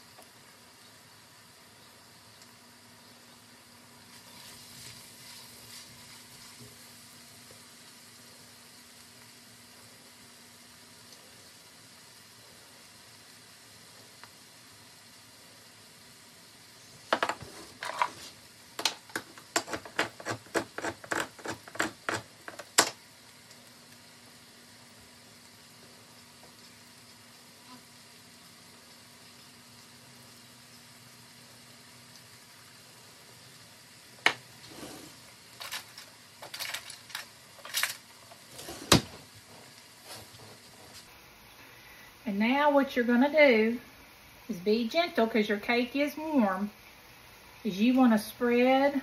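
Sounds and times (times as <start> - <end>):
can opener clicking: 18.8 - 23.0
drawer shutting: 34.7 - 37.0, 37.6 - 41.0
utensils rattling in drawer: 35.6 - 39.0.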